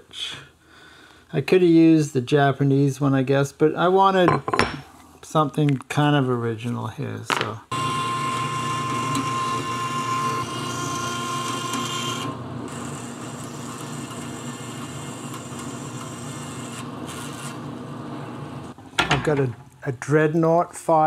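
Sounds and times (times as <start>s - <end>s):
high ringing tone: 7.7s - 12.4s
tool scraping metal: 8.5s - 17.8s.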